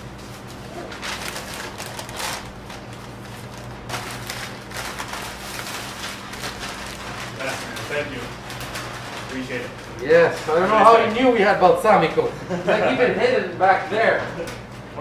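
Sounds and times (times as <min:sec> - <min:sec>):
steady low hum: 0:00.0 - 0:15.0
paper rustling and crinkling: 0:00.2 - 0:11.3.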